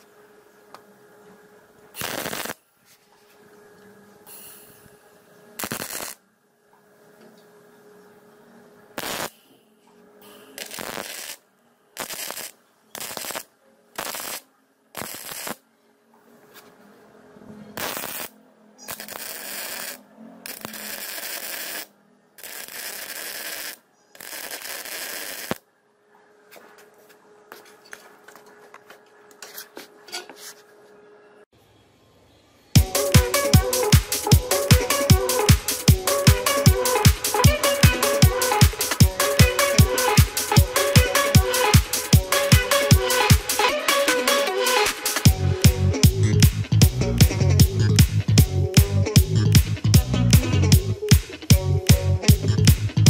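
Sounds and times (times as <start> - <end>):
arc welding bursts: 2.0 - 2.6, 5.6 - 6.2, 9.0 - 9.4, 10.2 - 15.6, 17.7 - 25.6, 32.8 - 45.3.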